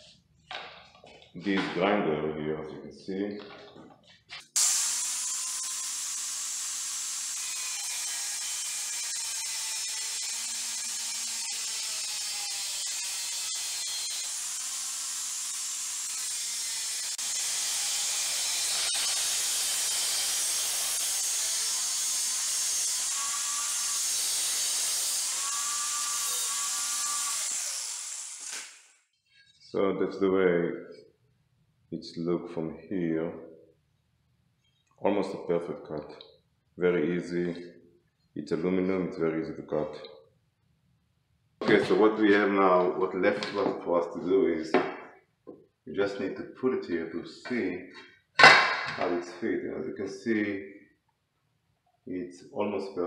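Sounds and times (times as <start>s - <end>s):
angle grinder cutting metal: 4.6s - 28.9s.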